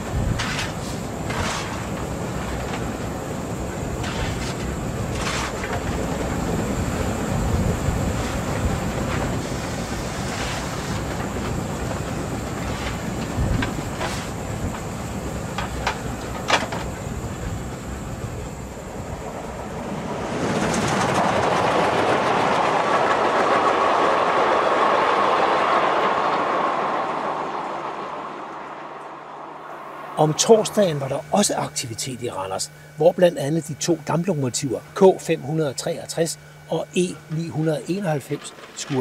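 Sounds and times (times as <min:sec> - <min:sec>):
steam train running: 0:00.0 - 0:39.0
train rushing past: 0:05.8 - 0:31.8.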